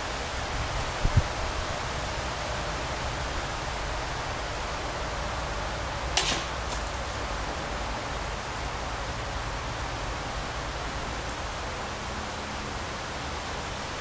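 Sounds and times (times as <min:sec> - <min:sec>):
steady outdoor hiss: 0:00.0 - 0:14.0
gunshot hitting water bottle: 0:06.2 - 0:06.9
sharp crack and faint snap: 0:06.2 - 0:07.0.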